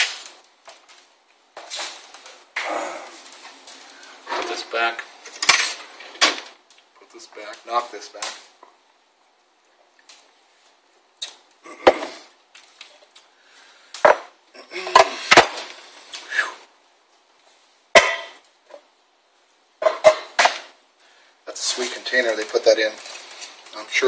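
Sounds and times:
rustling: 0.0 - 24.0
hard objects knocking and clattering: 14.0 - 15.7, 19.8 - 20.8.

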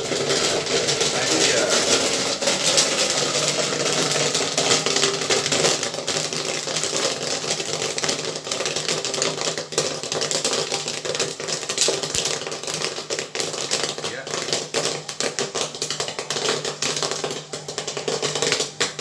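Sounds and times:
machine hum: 0.0 - 7.3
popcorn popping: 0.0 - 19.0.

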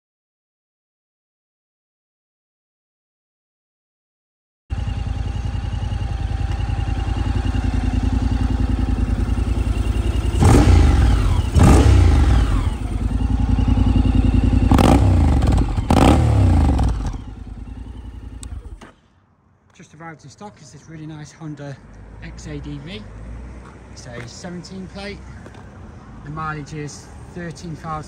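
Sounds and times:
motorcycle engine revving: 4.7 - 19.0.

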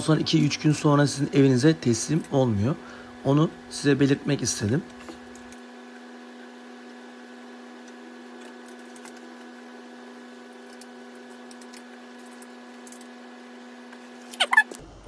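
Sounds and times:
steady hum: 0.0 - 15.0.

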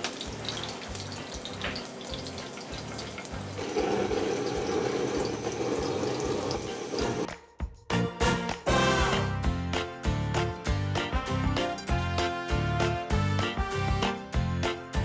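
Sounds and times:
squash sizzling in a frying pan: 0.0 - 7.3
kitchen blowtorch hissing: 3.5 - 7.3.

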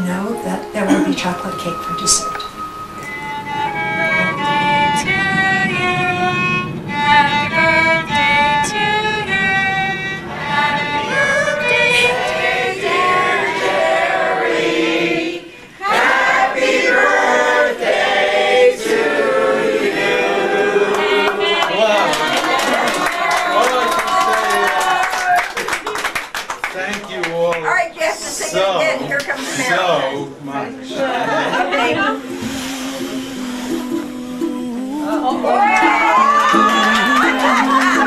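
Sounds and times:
bowed strings: 0.0 - 15.6
voices singing melody: 0.0 - 23.3, 28.3 - 38.0.

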